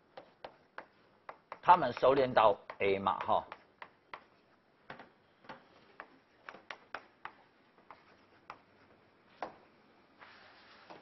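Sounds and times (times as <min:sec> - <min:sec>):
chalk tapping and scratching on chalkboard: 0:00.0 - 0:04.6, 0:05.5 - 0:09.6.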